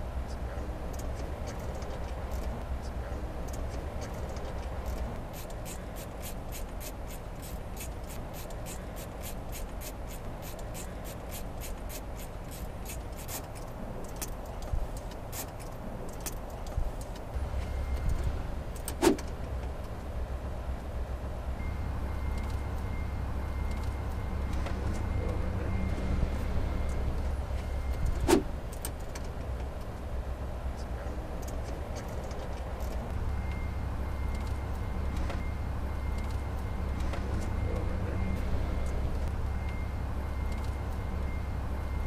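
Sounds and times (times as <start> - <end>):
low steady hum: 0.0 - 42.0
rapid even ticks: 3.4 - 17.2
loud sharp snap: 19.0 - 19.3.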